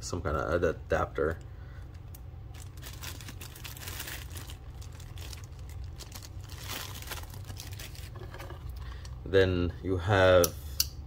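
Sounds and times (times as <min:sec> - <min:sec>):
plastic bags crinkling: 0:02.5 - 0:09.1.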